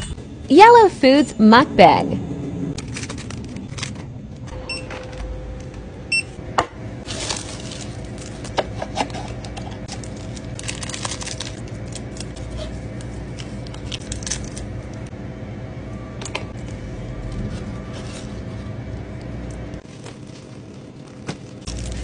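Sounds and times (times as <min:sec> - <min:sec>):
plastic packaging crinkling and tearing: 0:02.8 - 0:04.0, 0:07.0 - 0:15.0, 0:19.8 - 0:22.0.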